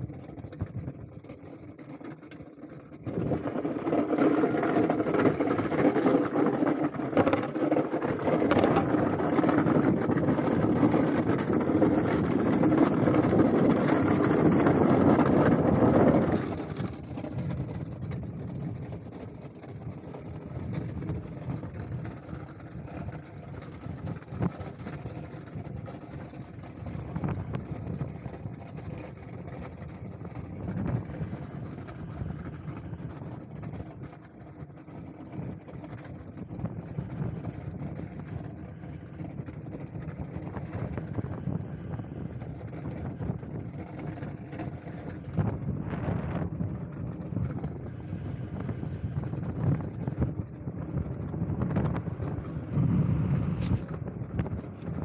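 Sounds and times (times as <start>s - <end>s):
ice skates gliding on ice: 0.0s - 55.0s
wind on microphone: 2.9s - 33.9s, 35.2s - 55.0s.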